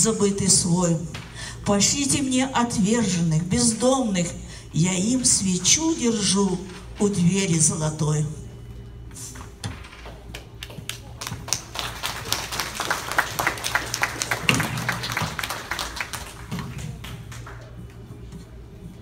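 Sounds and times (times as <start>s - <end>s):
audience applauding: 10.6s - 17.8s.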